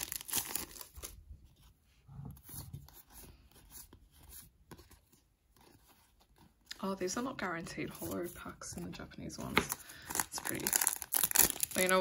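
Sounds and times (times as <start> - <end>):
foil wrapper crinkling: 0.0 - 1.1, 9.8 - 12.0.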